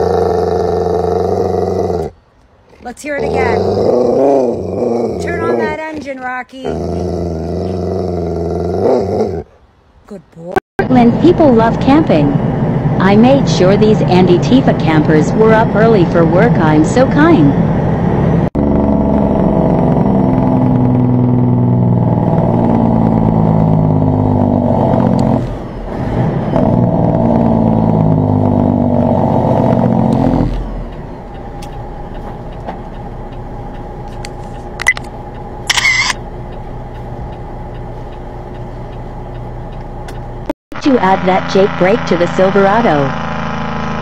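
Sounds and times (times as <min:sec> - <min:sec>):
diesel engine running: 0:10.8 - 0:44.0.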